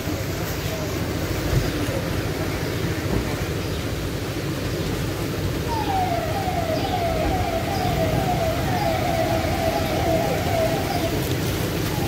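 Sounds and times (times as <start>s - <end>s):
siren wailing: 5.7s - 12.0s.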